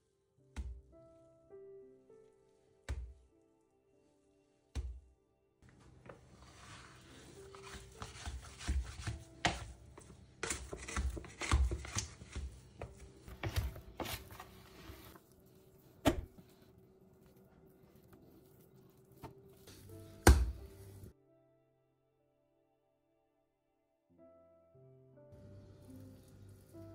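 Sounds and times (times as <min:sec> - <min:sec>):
scraper scraping dough on countertop: 0:10.4 - 0:12.6.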